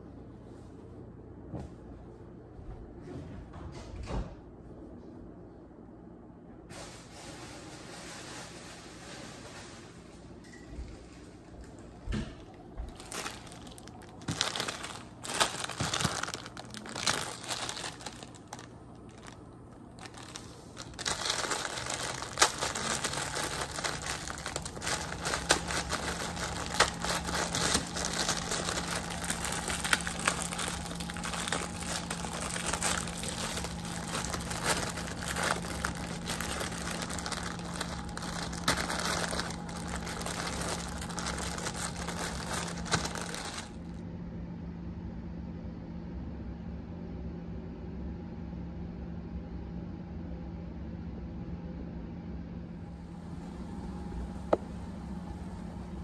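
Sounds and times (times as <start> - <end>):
steady low hum: 0.0 - 56.0
plastic wrapper crinkling: 12.8 - 43.9.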